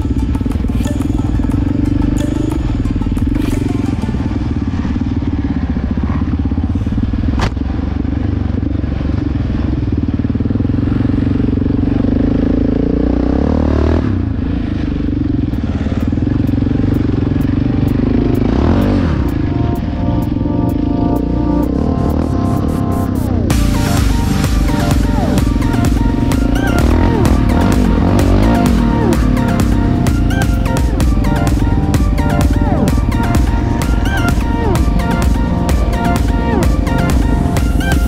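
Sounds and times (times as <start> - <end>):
faint music beat: 0.0 - 5.6, 15.4 - 38.0
quad engine revving: 0.0 - 38.0.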